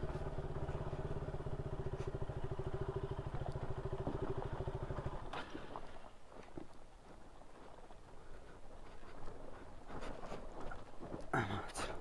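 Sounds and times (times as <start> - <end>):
motorcycle engine idling: 0.0 - 5.6.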